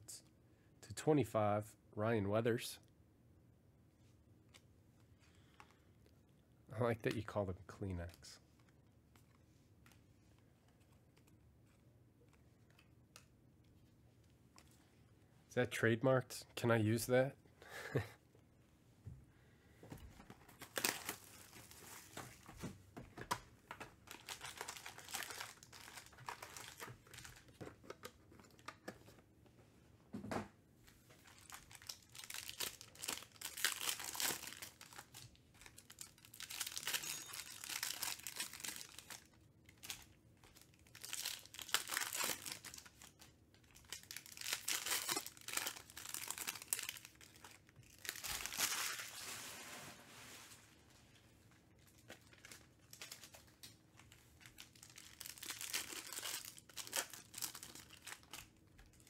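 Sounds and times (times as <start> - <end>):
card pack wrappers tearing and crinkling: 20.5 - 22.5, 23.7 - 28.7, 31.2 - 49.4, 51.9 - 59.0.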